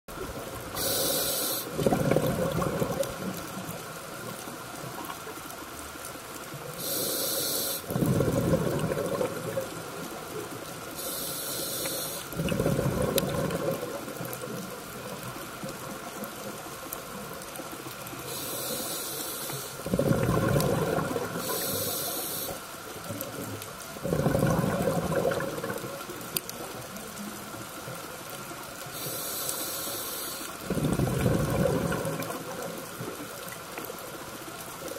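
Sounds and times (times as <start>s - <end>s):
bubbling exhaled air: 0.2s - 3.5s, 6.8s - 9.9s, 11.0s - 14.2s, 18.2s - 22.6s, 24.0s - 26.0s, 28.9s - 32.9s
regulator inhale hiss: 0.7s - 1.9s, 6.7s - 7.9s, 11.0s - 12.4s, 18.2s - 19.8s, 21.4s - 22.7s, 28.8s - 30.6s.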